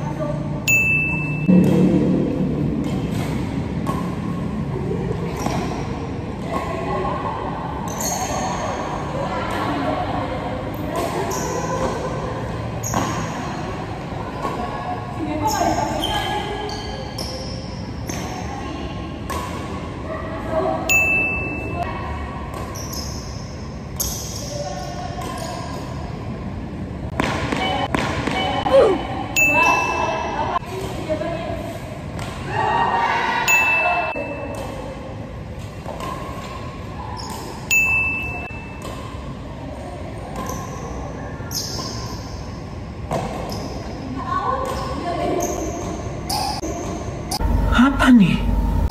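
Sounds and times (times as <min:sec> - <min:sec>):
indoor hall noise: 0:00.0 - 0:48.9
high ringing ping: 0:00.7 - 0:04.3, 0:20.9 - 0:21.8, 0:29.4 - 0:30.4, 0:33.5 - 0:34.6, 0:37.7 - 0:38.8
indoor hall din: 0:01.4 - 0:05.2, 0:47.4 - 0:48.9
rackets hitting shuttlecock: 0:02.7 - 0:04.6.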